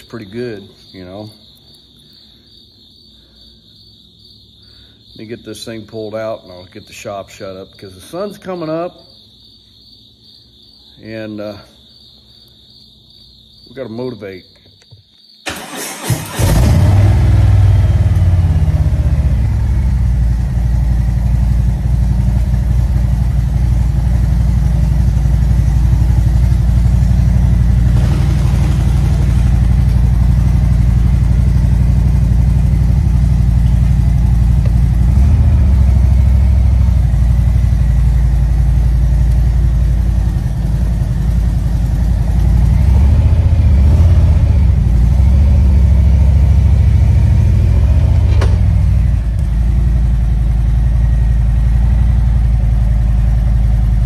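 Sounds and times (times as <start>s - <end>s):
motorcycle engine idling: 17.2s - 54.0s.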